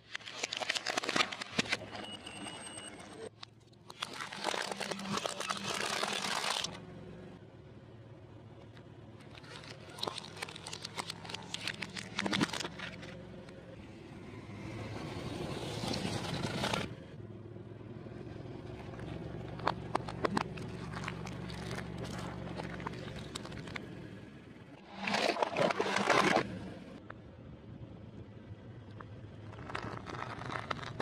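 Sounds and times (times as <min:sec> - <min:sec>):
plastic cracking under tyre: 0:00.0 - 0:01.9, 0:03.4 - 0:06.8, 0:09.2 - 0:13.2, 0:18.9 - 0:23.9, 0:29.0 - 0:31.0
car engine running slowly: 0:06.7 - 0:24.8, 0:26.5 - 0:31.0.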